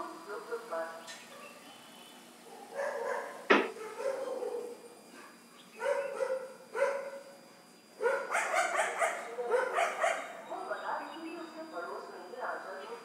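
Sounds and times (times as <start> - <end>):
dog barking: 2.4 - 4.8, 5.8 - 7.3, 8.0 - 10.4.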